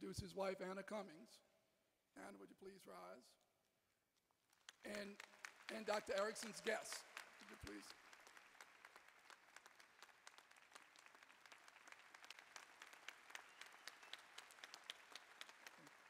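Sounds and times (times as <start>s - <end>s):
audience applause: 4.6s - 16.0s.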